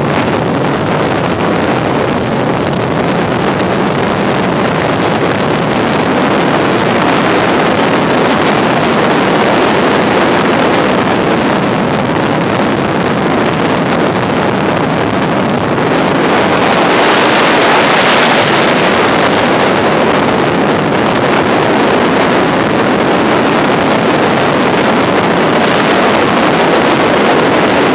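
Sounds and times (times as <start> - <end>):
helicopter engine and rotor: 13.9 - 27.9.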